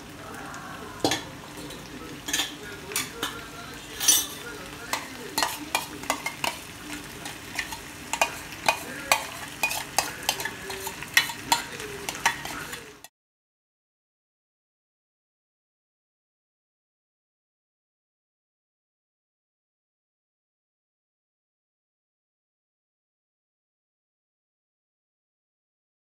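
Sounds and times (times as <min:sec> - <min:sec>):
vegetables sizzling in a wok: 0:00.0 - 0:13.1.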